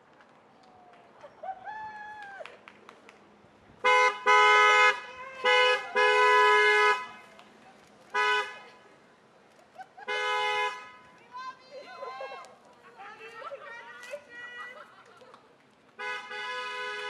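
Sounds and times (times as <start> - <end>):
car horn honking: 3.8 - 7.2, 10.1 - 11.1, 16.0 - 17.0.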